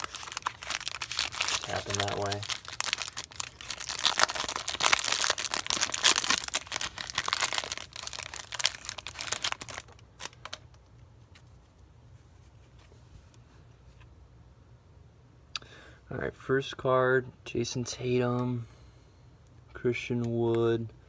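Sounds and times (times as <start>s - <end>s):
plastic wrapper crinkling and tearing: 0.0s - 10.8s.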